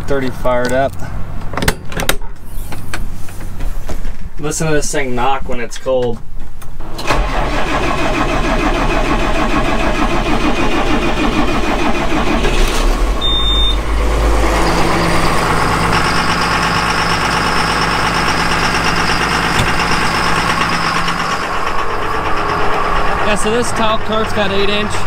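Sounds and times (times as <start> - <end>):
diesel tractor engine idling: 6.8 - 25.0.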